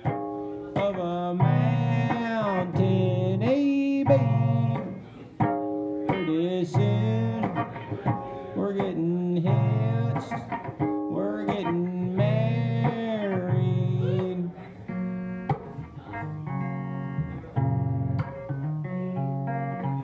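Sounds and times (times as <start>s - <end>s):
guitar strummed and picked: 0.0s - 20.0s
man singing: 0.5s - 5.4s, 6.0s - 15.1s.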